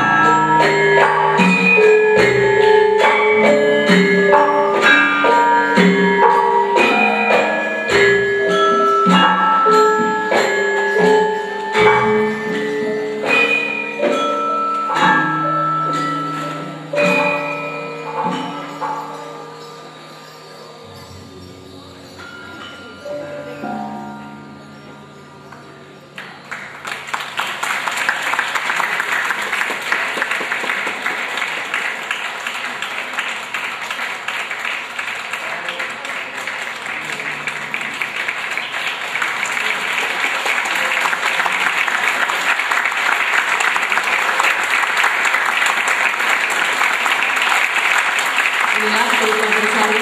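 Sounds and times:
gamelan note: 0.0 - 27.8, 35.5 - 50.0
audience applauding: 26.2 - 50.0.

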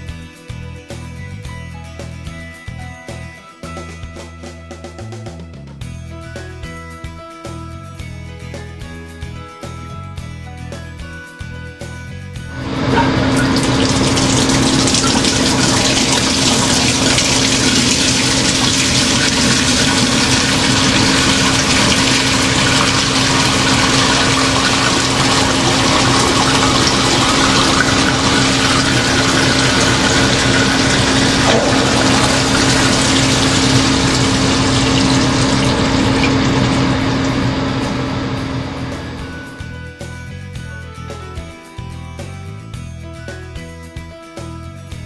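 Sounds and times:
oil gushing into metal tank: 12.5 - 39.5
low motor hum: 12.5 - 39.7
oil splashing: 12.6 - 39.4.

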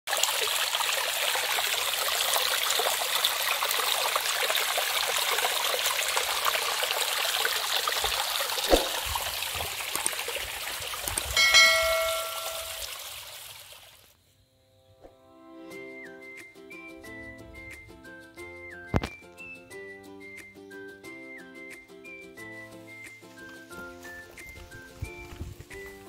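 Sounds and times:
stream water trickling over rock: 0.1 - 14.1
short knock: 8.7 - 9.1
bell-like chime: 11.4 - 13.0.

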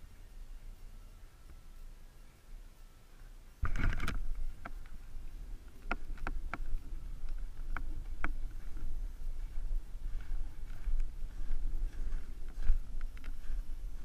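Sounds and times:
wind and propeller rumble: 3.6 - 14.0.

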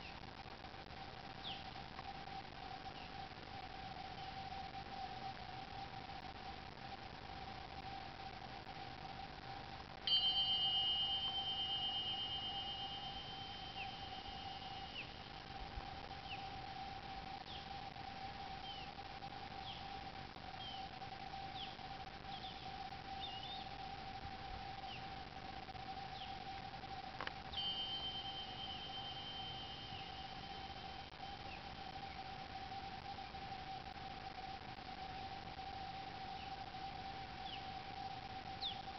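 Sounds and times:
small cymbals ringing: 10.0 - 16.6, 27.2 - 32.0
birds chirping: 10.1 - 16.6, 17.4 - 17.8, 19.6 - 20.0, 20.6 - 23.8, 27.3 - 32.2.

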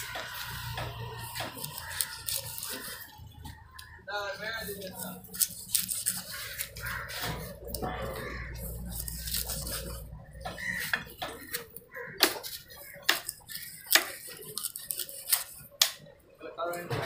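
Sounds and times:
cleaver chopping fish on wood: 10.4 - 14.2.

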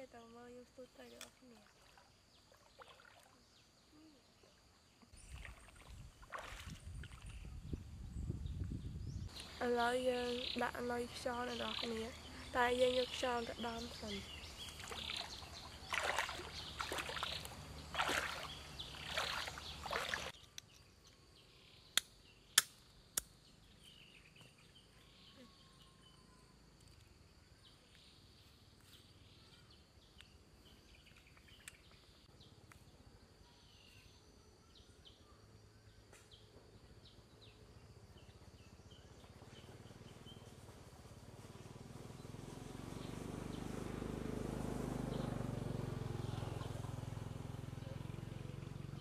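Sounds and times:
faint chirps: 0.0 - 5.9, 21.4 - 40.6
person wading through water: 1.4 - 7.4, 14.3 - 20.4.

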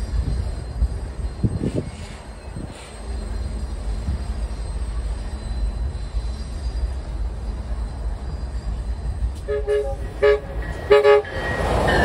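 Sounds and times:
freight cars rumbling on tracks: 0.0 - 12.0.

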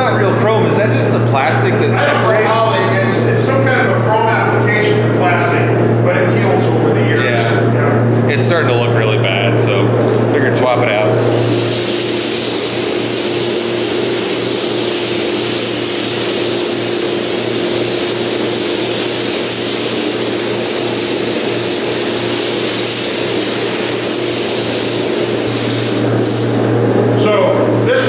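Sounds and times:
fans humming: 0.0 - 28.0
spray gun hissing: 11.1 - 26.7.

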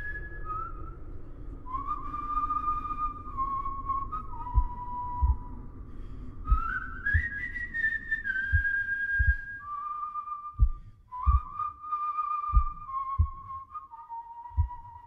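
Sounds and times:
person whistling slow melody: 0.0 - 5.6, 6.4 - 15.0
low heartbeat-like thumps: 3.0 - 9.7, 10.5 - 11.8, 12.5 - 13.7, 14.5 - 15.0.

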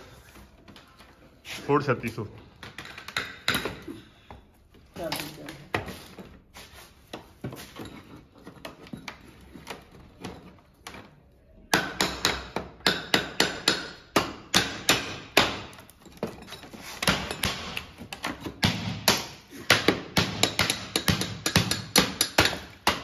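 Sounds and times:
hammer striking wooden crate: 11.7 - 15.8, 17.0 - 23.0.

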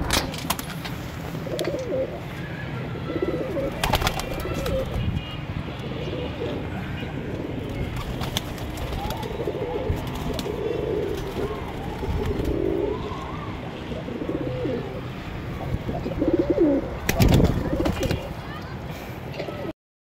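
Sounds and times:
pigeons cooing: 1.4 - 5.0, 5.7 - 13.4, 14.0 - 18.3.

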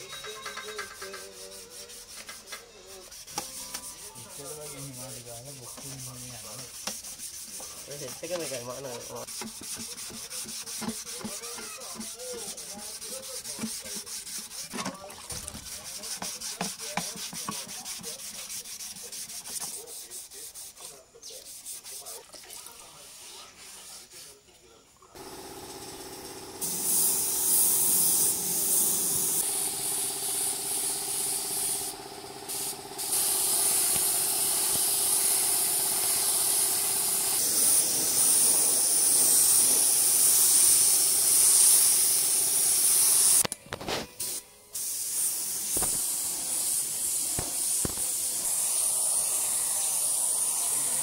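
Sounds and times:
spray gun hissing: 25.2 - 43.4, 44.2 - 51.0.

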